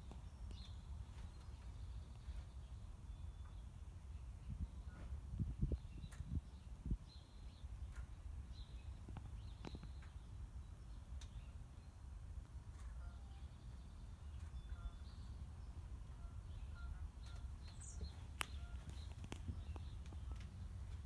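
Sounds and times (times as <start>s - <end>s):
faint bird chirps: 12.9s - 20.6s
sharp clicks: 17.2s - 20.5s.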